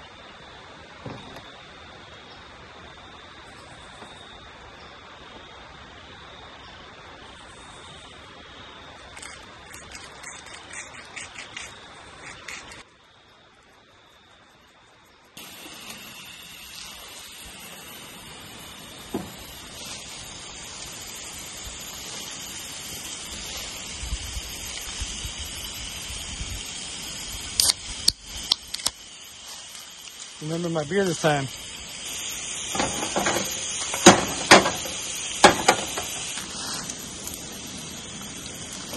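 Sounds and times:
crickets chirping: 0:00.0 - 0:38.9
steak sizzling: 0:08.8 - 0:12.9, 0:15.4 - 0:38.9
sharp clicks: 0:27.6 - 0:29.0.

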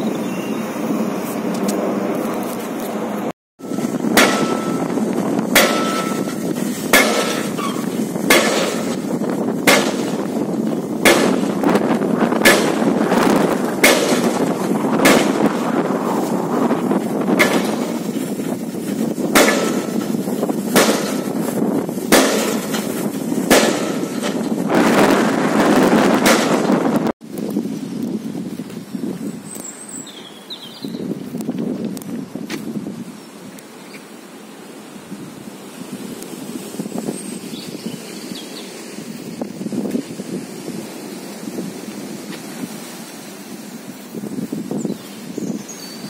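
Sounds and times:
excavator engine and hydraulics: 0:00.0 - 0:27.1
pile hammer striking metal: 0:04.1 - 0:09.0, 0:09.6 - 0:10.3, 0:11.0 - 0:11.5, 0:13.8 - 0:15.5, 0:19.3 - 0:20.0, 0:20.7 - 0:21.4, 0:22.1 - 0:22.9, 0:23.5 - 0:24.5.

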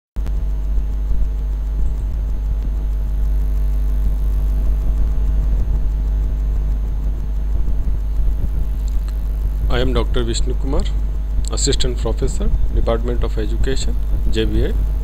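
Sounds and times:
low electrical hum: 0:00.2 - 0:15.0.

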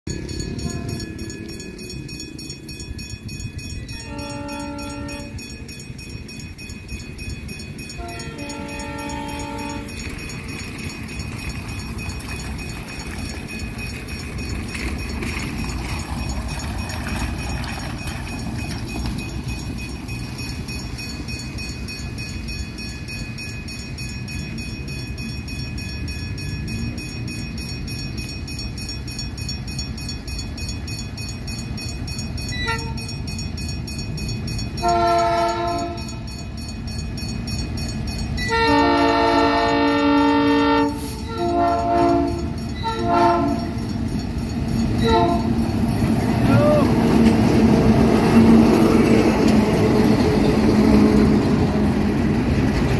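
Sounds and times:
diesel locomotive engines rumbling: 0:00.0 - 0:52.9
locomotive horn blast: 0:03.9 - 0:05.4, 0:08.0 - 0:10.0, 0:32.6 - 0:33.1, 0:34.8 - 0:36.3, 0:38.4 - 0:43.7, 0:45.0 - 0:45.6.

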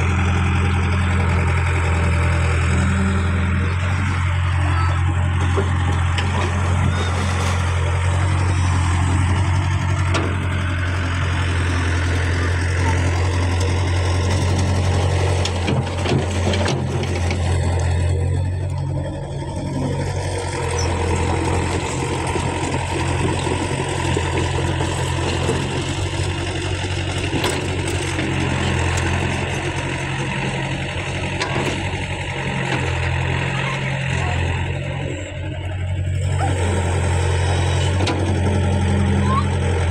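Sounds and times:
excavator diesel engine droning: 0:00.0 - 0:39.9.

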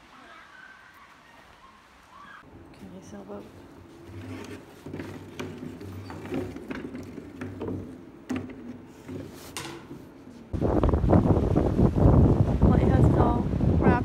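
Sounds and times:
wind noise on microphone: 0:10.5 - 0:14.0.

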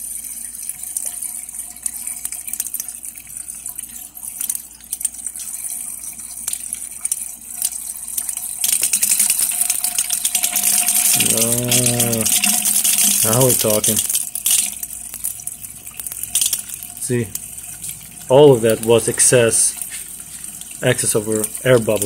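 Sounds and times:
coolant squirting and spattering: 0:00.0 - 0:22.0
air bubbles gushing out: 0:05.3 - 0:22.0.

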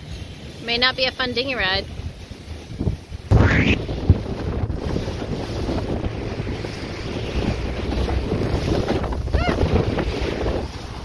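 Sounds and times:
waves slapping against hull: 0:00.0 - 0:11.0
wind buffeting microphone: 0:00.0 - 0:11.0.

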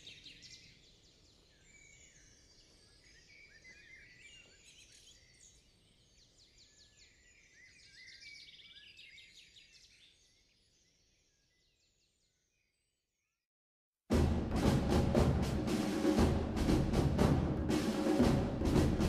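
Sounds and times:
songbirds chirping: 0:00.0 - 0:13.3.

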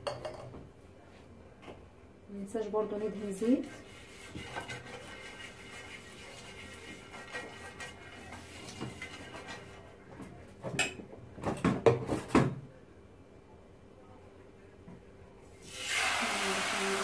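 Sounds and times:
pastry brush swishing in pan: 0:03.0 - 0:09.9.

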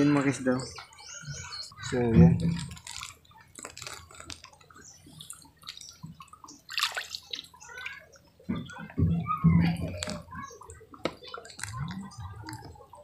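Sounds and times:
water splashing around wading feet: 0:02.4 - 0:08.8.

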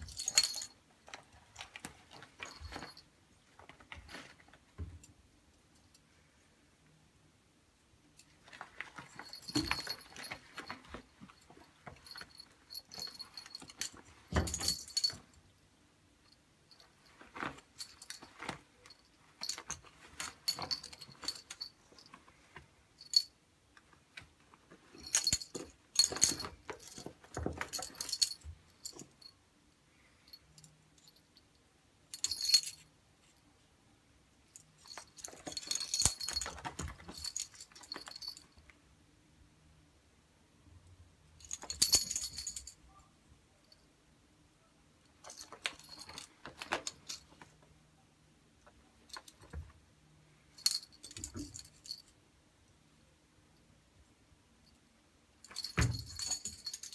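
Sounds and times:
collar bell jingling: 0:00.0 - 0:00.8, 0:02.2 - 0:03.1, 0:08.5 - 0:15.4, 0:16.7 - 0:22.3, 0:24.9 - 0:29.3, 0:34.8 - 0:38.5, 0:41.4 - 0:42.8, 0:55.5 - 0:56.9.

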